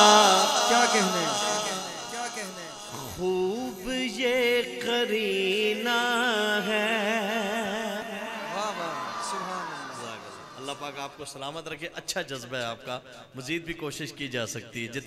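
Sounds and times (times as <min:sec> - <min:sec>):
man singing into microphone: 0:00.0 - 0:08.4.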